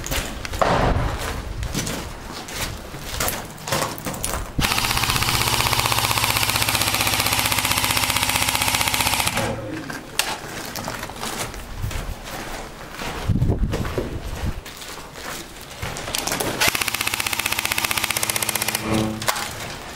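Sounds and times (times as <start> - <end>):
knocks and scuffs on rubble: 0.0 - 4.6, 9.8 - 16.6
airsoft rifle full-auto burst: 4.6 - 9.6, 16.6 - 19.2.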